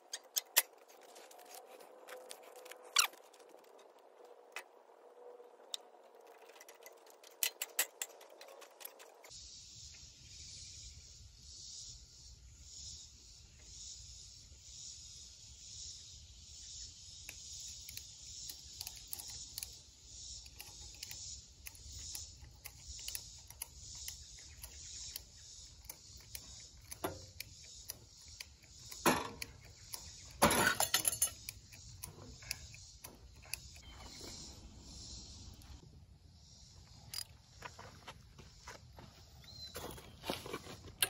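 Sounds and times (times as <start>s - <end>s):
metallic clicks and knocks: 5.8s - 9.3s, 20.4s - 33.9s.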